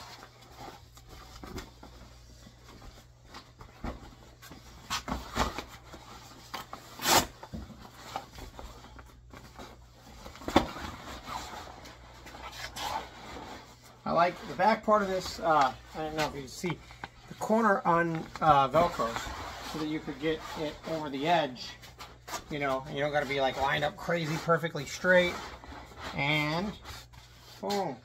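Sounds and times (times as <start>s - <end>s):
handling knocks and scrapes: 0.0s - 28.0s
fabric rustling and brushing: 17.4s - 28.0s.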